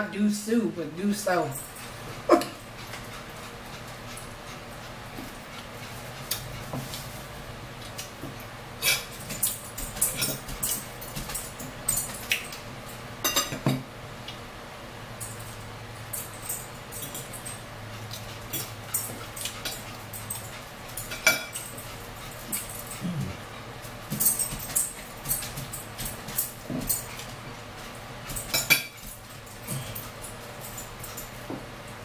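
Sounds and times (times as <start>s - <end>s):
forks clinking on plates: 8.8s - 12.6s, 13.2s - 13.8s, 16.1s - 23.0s, 28.2s - 30.1s
eating mouth sounds: 22.9s - 23.5s.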